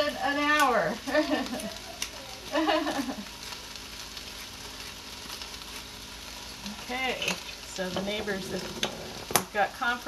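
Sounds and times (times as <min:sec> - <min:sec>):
vegetables sizzling in a pot: 0:00.0 - 0:10.0
person speaking: 0:07.8 - 0:09.2.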